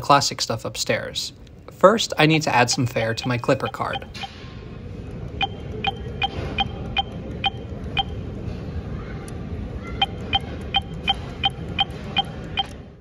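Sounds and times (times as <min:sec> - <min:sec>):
steady station hum: 0:00.0 - 0:12.8
fare machine beeping: 0:02.4 - 0:04.4, 0:05.4 - 0:08.2.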